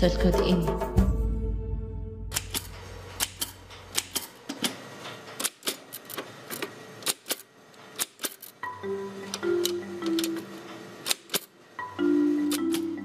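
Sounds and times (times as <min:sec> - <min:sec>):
typewriter key strikes: 0:11.0 - 0:11.5.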